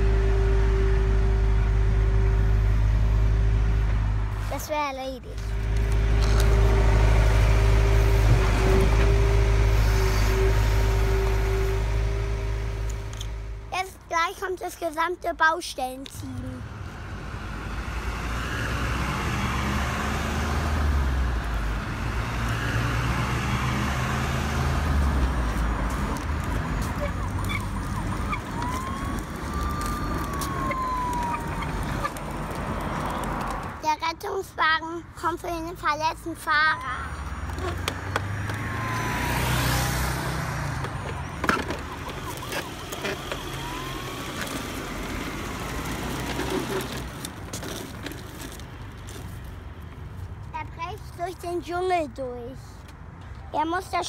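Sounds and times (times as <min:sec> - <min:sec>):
heavy truck engine rumble: 0:00.0 - 0:15.1, 0:15.7 - 0:51.3
toy wheels rolling on concrete: 0:25.2 - 0:33.8, 0:37.4 - 0:39.9, 0:40.5 - 0:50.0.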